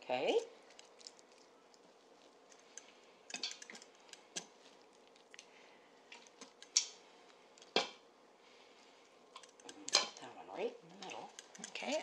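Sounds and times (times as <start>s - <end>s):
kitchen tongs clicking and tapping: 2.5s - 4.5s, 6.4s - 7.0s, 9.4s - 10.2s, 11.0s - 12.0s.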